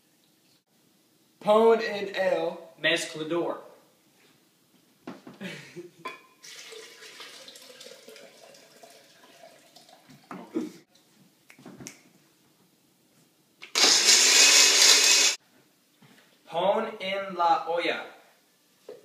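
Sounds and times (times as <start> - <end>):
blender grinding: 13.6 - 15.4.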